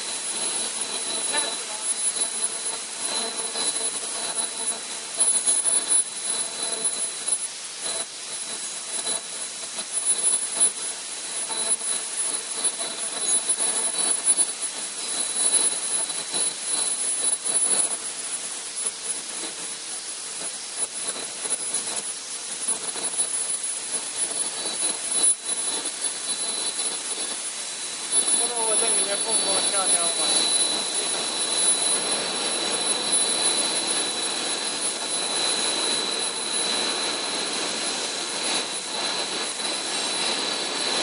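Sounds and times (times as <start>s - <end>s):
machine hiss: 0.0s - 41.0s
thin high whines: 0.0s - 41.0s.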